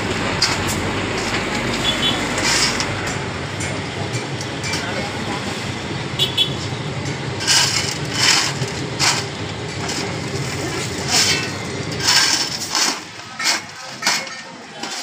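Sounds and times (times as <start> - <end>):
steady low rumble: 0.0 - 13.2
shovel scraping crushed stone: 2.0 - 2.9, 7.4 - 15.0.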